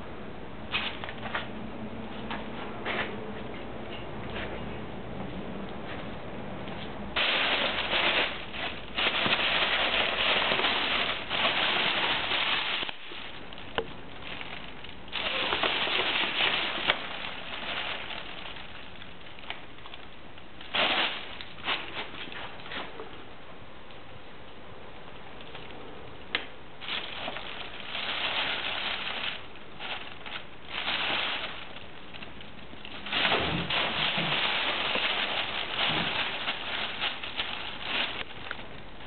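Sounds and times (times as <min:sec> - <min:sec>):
plastic bag crinkling: 0:07.2 - 0:23.0, 0:26.8 - 0:39.0.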